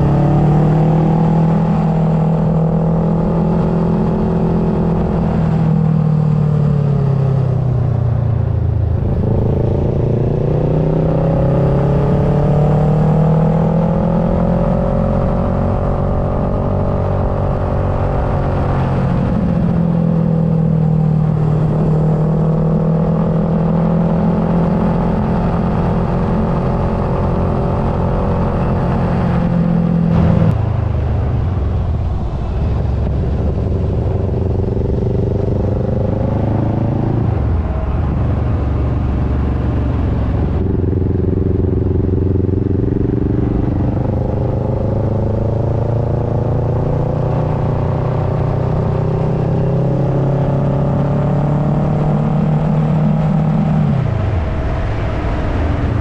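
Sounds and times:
motorcycle engine revving: 0:00.0 - 0:56.0
wind rush: 0:25.2 - 0:45.4, 0:52.2 - 0:56.0.

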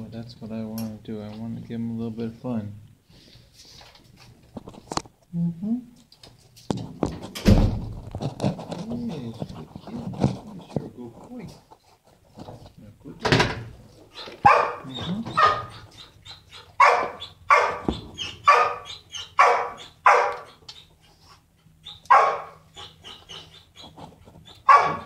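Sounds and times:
dog barking: 0:14.4 - 0:15.8, 0:16.8 - 0:20.6, 0:22.1 - 0:22.9, 0:24.6 - 0:25.0.

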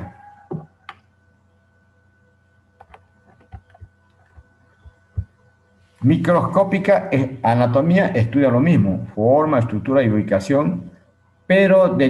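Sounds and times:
low steady hum: 0:00.0 - 0:12.0
faint clicks and taps: 0:02.8 - 0:05.4.

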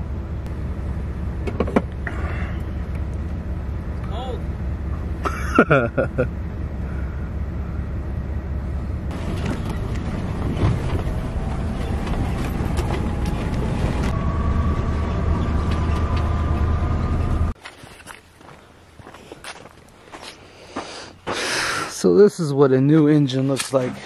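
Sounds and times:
vehicle engine rumble: 0:00.0 - 0:21.8
faint whine: 0:06.5 - 0:17.6.

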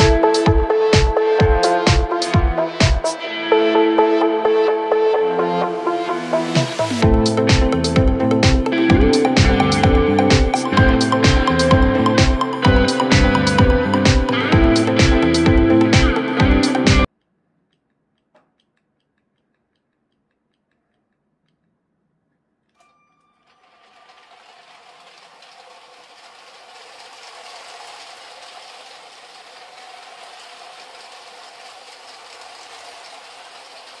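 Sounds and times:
toy train motor running: 0:23.4 - 0:34.0.

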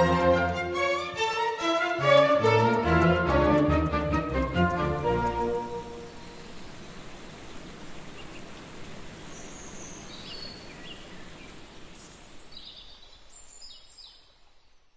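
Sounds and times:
steady outdoor hiss: 0:00.0 - 0:14.9
small birds chirping: 0:04.4 - 0:14.9.

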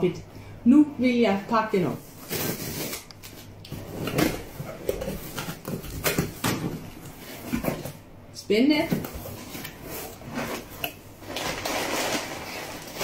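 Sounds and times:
cardboard and tape rustling: 0:02.1 - 0:08.1, 0:08.8 - 0:13.0.

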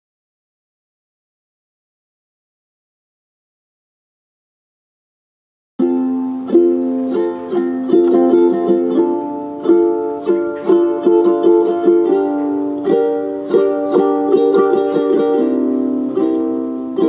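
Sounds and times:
light plucked-string tune: 0:05.8 - 0:17.0.

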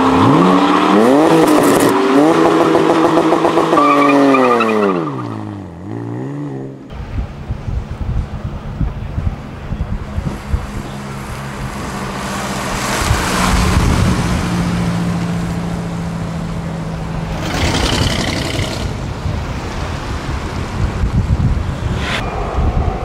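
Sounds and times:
wind rumble on microphone: 0:06.9 - 0:15.8, 0:17.2 - 0:23.0
rushes of noise: 0:17.2 - 0:23.0
car engine driving by: 0:21.4 - 0:23.0.

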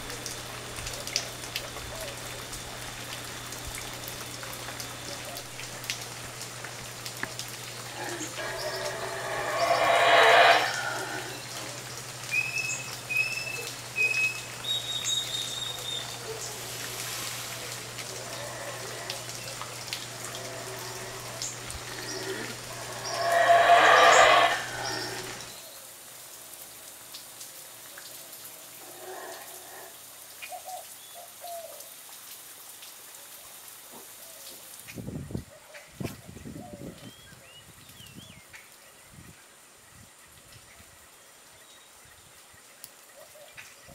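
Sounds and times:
rough animal call: 0:07.8 - 0:11.8, 0:16.9 - 0:25.5.

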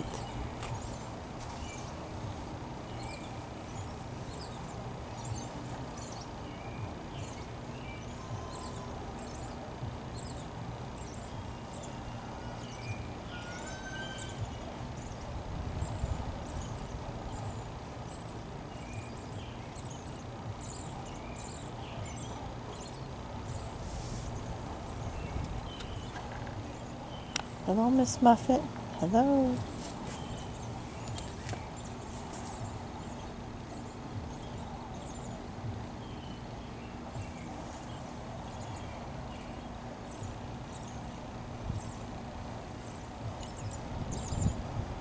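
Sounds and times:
small birds chirping: 0:00.0 - 0:45.0
wind rumble on microphone: 0:10.7 - 0:19.4, 0:20.2 - 0:45.0.

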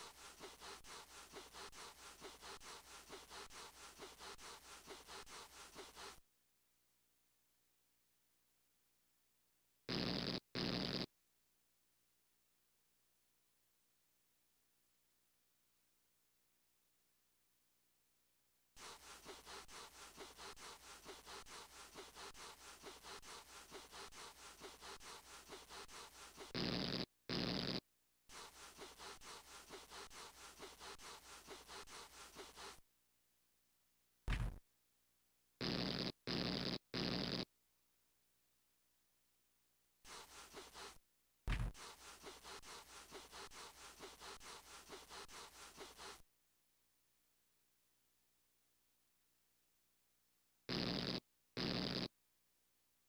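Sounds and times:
scratchy rubbing on carpet: 0:00.0 - 0:06.2, 0:18.8 - 0:32.8, 0:40.0 - 0:46.3.

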